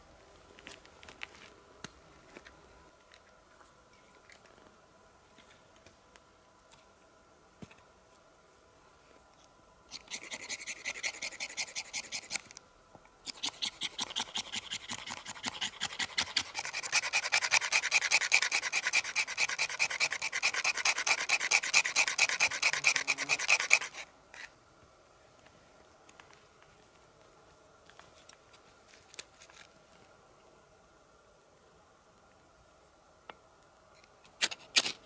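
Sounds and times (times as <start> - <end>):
rapid rasping strokes: 9.9 - 12.5, 13.3 - 24.5.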